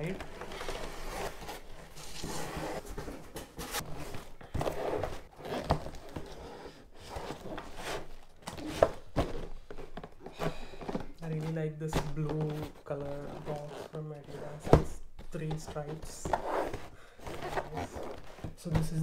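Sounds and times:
cardboard box scraping and rustling: 0.2s - 9.5s.

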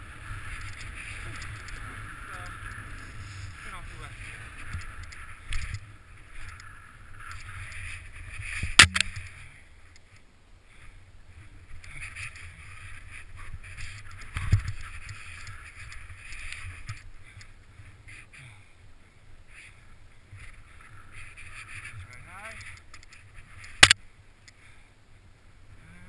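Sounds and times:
snow hissing under skis: 1.1s - 4.7s
sharp knock: 8.8s - 9.1s.

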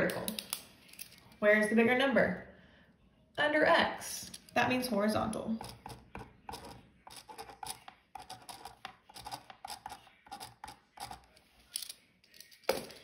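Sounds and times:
pen scratching on paper: 5.6s - 11.3s.

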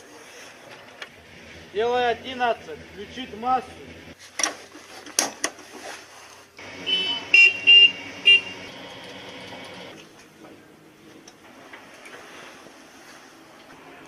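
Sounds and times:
vehicle horn toots: 6.6s - 8.9s.

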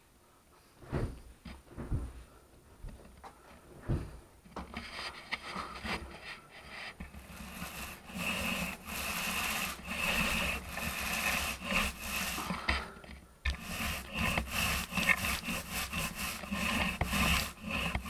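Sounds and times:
paint roller scraping on ceiling: 4.0s - 18.0s.

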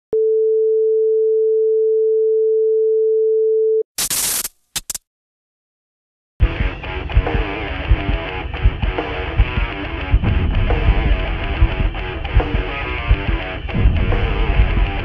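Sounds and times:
white noise static bursts: 4.0s - 5.0s.

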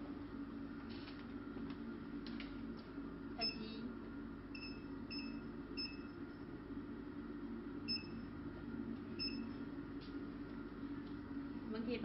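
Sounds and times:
electronic key beeps: 9.2s - 9.5s.

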